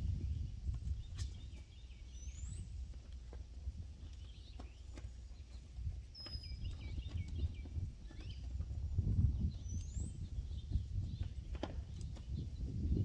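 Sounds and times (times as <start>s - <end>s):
low steady rumble: 0.0s - 13.0s
faint bird chirps: 4.1s - 8.6s.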